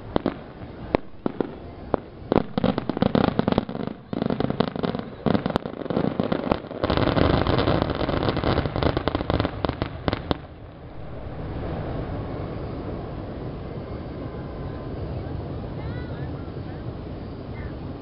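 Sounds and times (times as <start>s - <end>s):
fireworks banging: 0.0s - 13.7s
fireworks crackling rumble: 0.0s - 18.0s.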